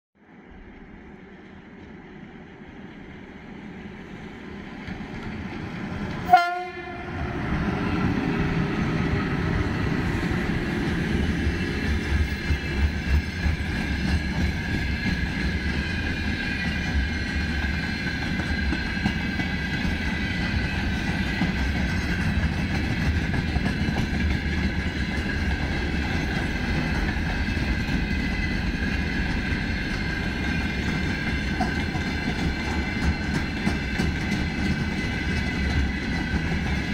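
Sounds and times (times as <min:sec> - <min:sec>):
freight train rumbling past: 0:00.2 - 0:36.9
train horn toot: 0:06.2 - 0:07.4.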